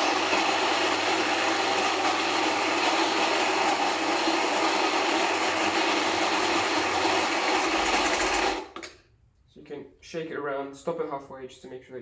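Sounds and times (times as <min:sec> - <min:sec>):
coffee grinder grinding beans: 0:00.0 - 0:08.8.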